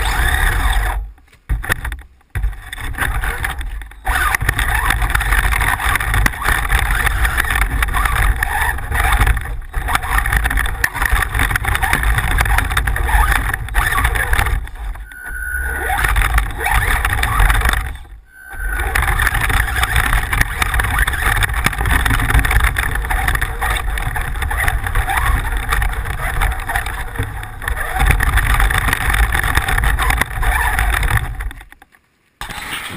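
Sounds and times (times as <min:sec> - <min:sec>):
rc car motor rumbling: 0:00.0 - 0:32.7.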